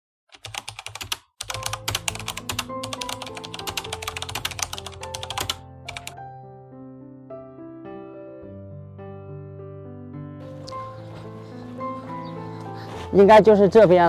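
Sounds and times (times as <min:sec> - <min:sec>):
keyboard typing clicks: 0:00.3 - 0:06.2
piano background music: 0:00.7 - 0:14.0.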